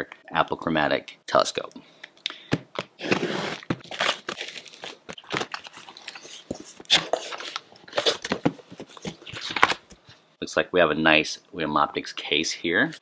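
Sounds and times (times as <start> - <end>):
packing tape tearing: 3.0 - 8.4.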